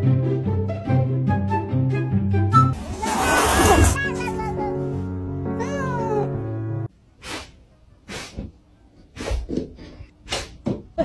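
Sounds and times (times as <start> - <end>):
background music with held notes: 0.0 - 2.8, 4.0 - 6.9.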